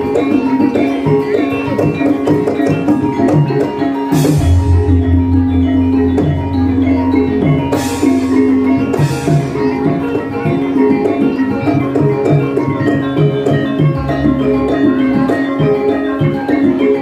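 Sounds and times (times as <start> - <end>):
drums: 0.0 - 17.0
metallophones ringing a melody: 0.0 - 17.0
deep low tone: 4.4 - 8.6.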